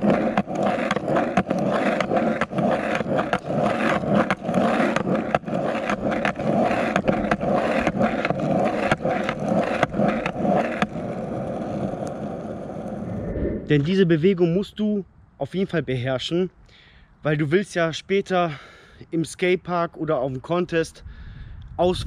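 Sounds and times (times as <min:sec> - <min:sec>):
skateboard clacks: 0:00.0 - 0:13.0
skateboard wheels rolling on asphalt: 0:00.0 - 0:13.9.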